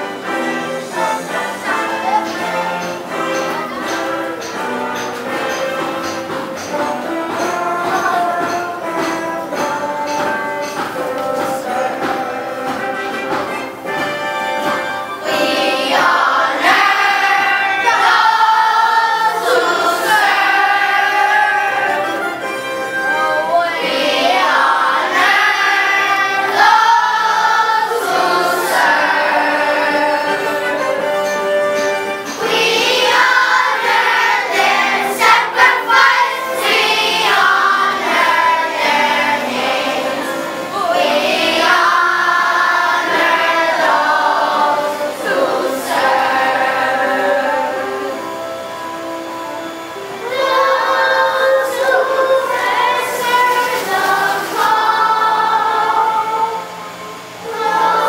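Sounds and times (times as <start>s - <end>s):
children singing in chorus: 0.0s - 58.0s
sharp knocks or claps: 2.3s - 16.8s.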